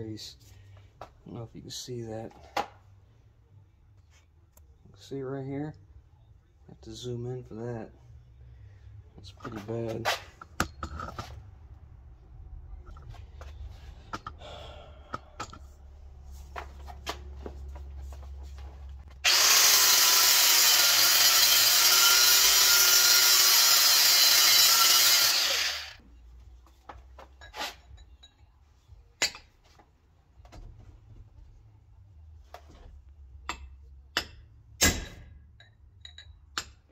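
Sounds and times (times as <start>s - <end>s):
angle grinder cutting metal: 19.2s - 26.0s.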